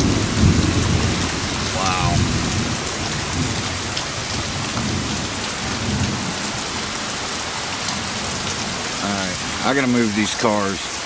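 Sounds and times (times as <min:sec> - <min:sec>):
low rumbling: 0:00.0 - 0:03.8
gusting wind: 0:00.0 - 0:09.7
heavy rain pouring: 0:00.0 - 0:11.0.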